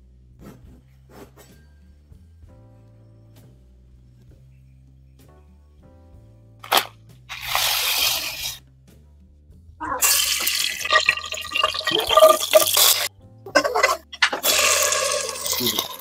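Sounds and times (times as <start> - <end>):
soft background music: 0.0 - 16.0
plastic packet crinkling: 6.6 - 8.6
liquid pouring into a pan: 6.7 - 8.6, 10.0 - 16.0.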